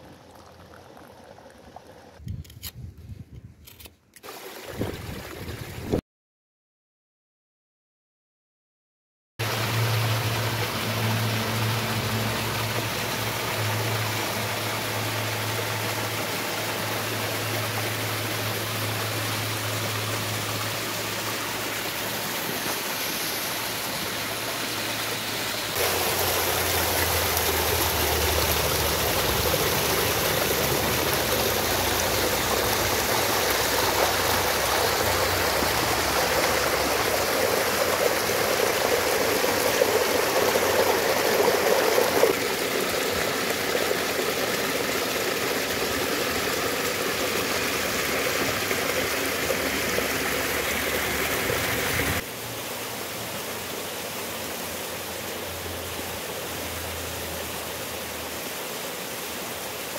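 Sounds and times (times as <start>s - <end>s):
white water pouring down channel: 0.0s - 2.2s, 4.2s - 5.8s, 9.4s - 59.9s
waterfalls splashing into pool: 4.2s - 6.0s, 9.4s - 59.9s.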